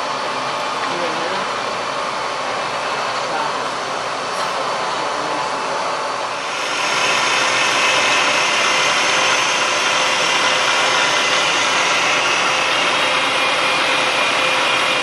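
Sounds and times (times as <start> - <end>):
milling machine cutting metal: 6.3 - 15.0.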